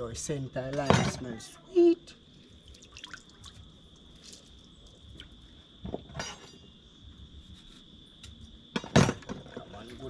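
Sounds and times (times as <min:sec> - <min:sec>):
liquid dripping and splashing: 0:02.6 - 0:05.5.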